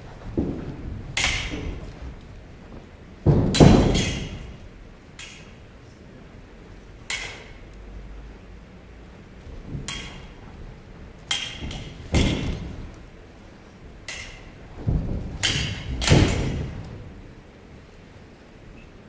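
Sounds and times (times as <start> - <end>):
feet stamping on stage: 0.0 - 4.6
swords clashing: 1.2 - 1.8, 3.5 - 4.6, 5.2 - 5.6, 7.1 - 7.6, 9.9 - 10.4, 11.2 - 12.8, 14.0 - 14.6, 15.4 - 16.8.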